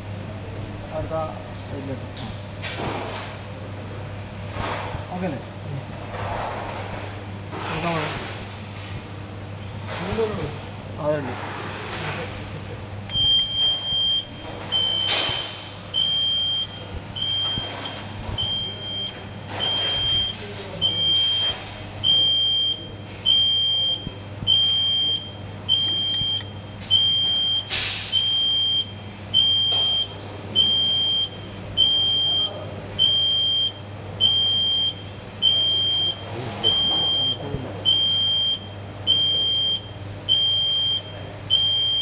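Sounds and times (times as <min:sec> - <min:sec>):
low steady hum: 0:12.2 - 0:42.0
warning buzzer beeping: 0:13.1 - 0:42.0.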